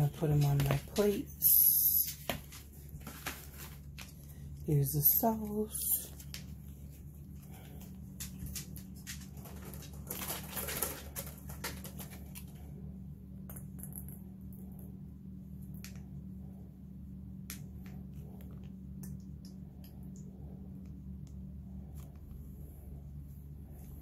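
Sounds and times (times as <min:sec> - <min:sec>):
low steady hum: 0:00.0 - 0:24.0
plastic pouch crinkling: 0:09.4 - 0:12.6.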